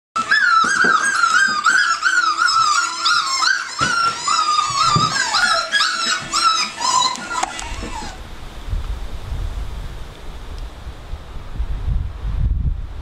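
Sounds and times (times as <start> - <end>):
puppies whining and yelping: 0.2 - 8.2
soft knocks of puppies moving: 0.2 - 8.2.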